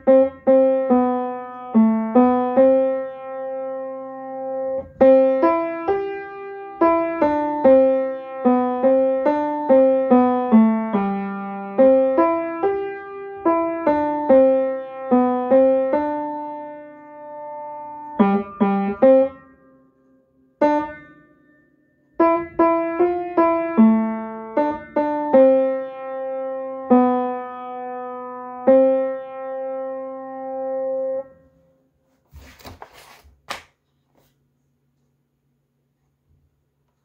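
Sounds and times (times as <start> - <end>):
upright piano playing: 0.0 - 19.9, 20.6 - 31.4
sheet music page rustling: 32.0 - 34.7.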